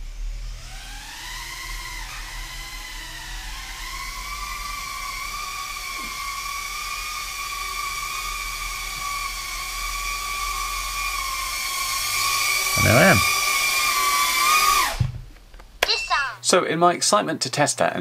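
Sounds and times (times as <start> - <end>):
quadcopter high whine: 0.0 - 15.0.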